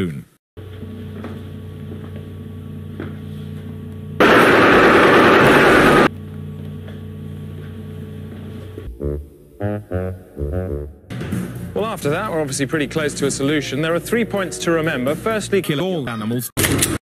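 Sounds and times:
low electrical hum: 0:00.6 - 0:10.4
loud static noise burst: 0:04.2 - 0:06.1.

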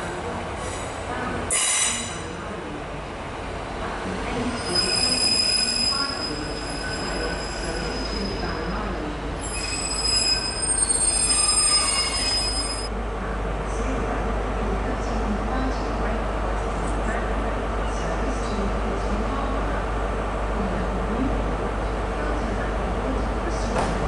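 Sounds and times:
train wheels squealing: 0:01.5 - 0:02.2, 0:04.5 - 0:08.6, 0:09.4 - 0:12.9.

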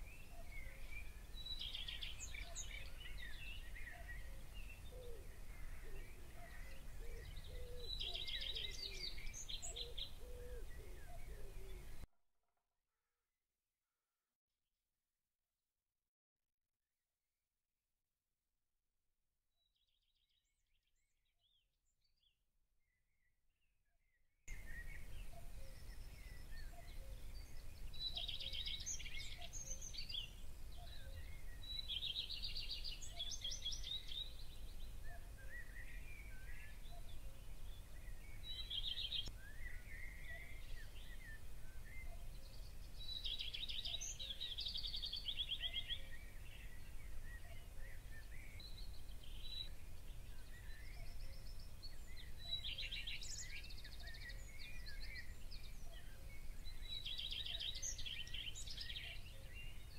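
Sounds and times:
songbirds singing trills: 0:00.0 - 0:12.1, 0:24.5 - 0:59.9.

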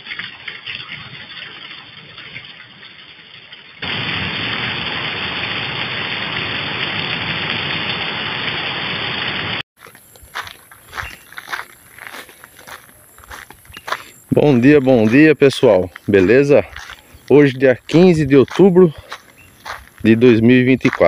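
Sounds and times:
heavy rain pouring: 0:03.8 - 0:09.6.

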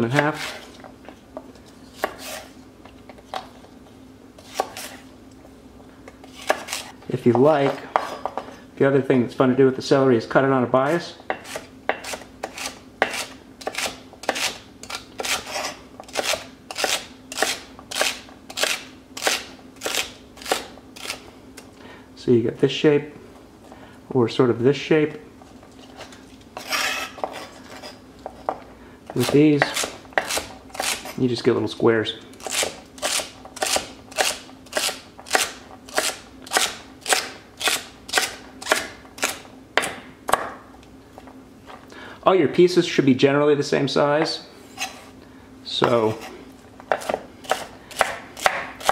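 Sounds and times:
knife chopping on wooden board: 0:02.0 - 0:02.4, 0:06.4 - 0:08.4, 0:11.3 - 0:14.6, 0:28.2 - 0:31.1, 0:32.4 - 0:40.6, 0:46.9 - 0:48.9.

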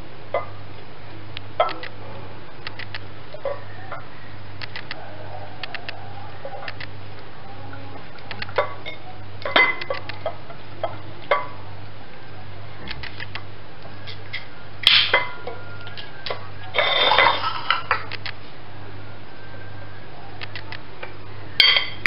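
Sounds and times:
steady low hum: 0:00.0 - 0:22.0
knife scraping a ceramic plate: 0:16.8 - 0:17.9.

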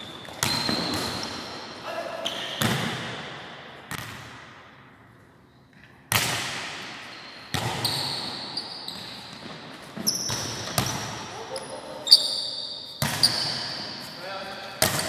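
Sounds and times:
volleyball smacks in a hall: 0:00.0 - 0:05.0, 0:06.0 - 0:11.7, 0:12.9 - 0:14.0, 0:14.6 - 0:15.0
short high squeaks: 0:12.0 - 0:14.0.

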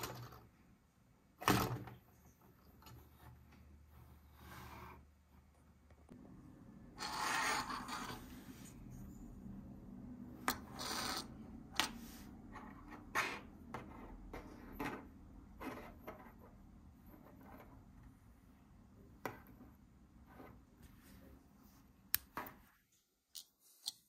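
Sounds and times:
rustle and slide on tabletop: 0:02.9 - 0:05.1, 0:07.0 - 0:09.3, 0:10.6 - 0:13.4.

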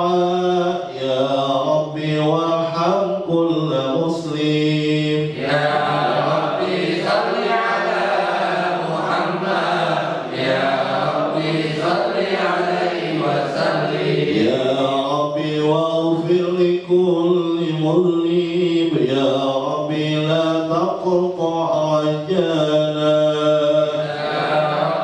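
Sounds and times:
man chanting into microphone: 0:00.0 - 0:07.1, 0:14.2 - 0:25.0.

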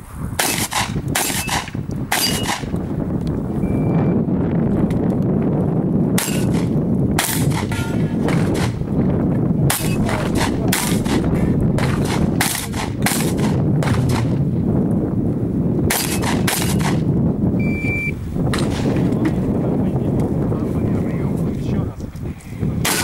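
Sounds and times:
steady low rumble: 0:00.0 - 0:23.0
shotgun shots: 0:00.4 - 0:02.7, 0:06.2 - 0:08.8, 0:09.7 - 0:14.4, 0:15.9 - 0:17.1.

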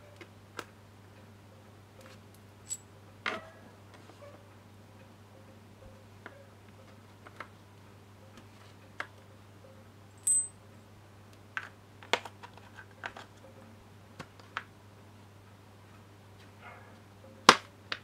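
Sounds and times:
faint steady hum: 0:00.0 - 0:18.0
metal bolts clinking on metal plate: 0:10.2 - 0:10.6.

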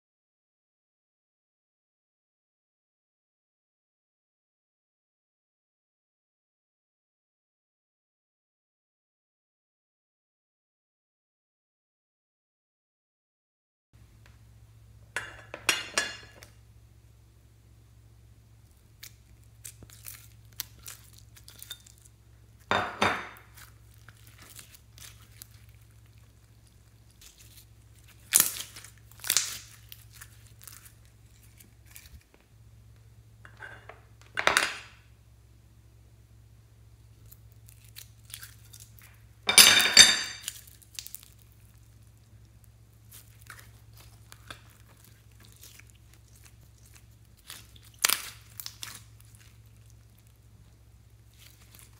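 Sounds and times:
crinkly slime scraping: 0:18.7 - 0:22.7, 0:23.3 - 0:32.5, 0:37.0 - 0:39.2, 0:40.4 - 0:51.9.

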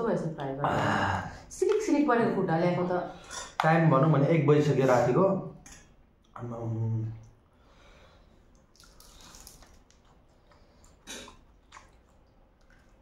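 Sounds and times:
wet chewing and slurping: 0:08.4 - 0:13.0
sharp mouth sounds: 0:10.9 - 0:12.3.

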